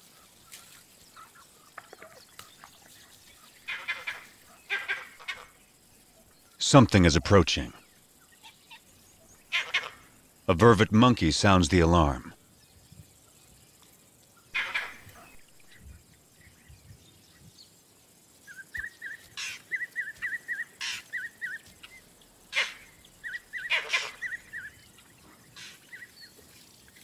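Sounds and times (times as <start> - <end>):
monkey alarm barks: 3.6 - 5.5, 9.5 - 10.1, 14.6 - 15.4, 22.5 - 24.7.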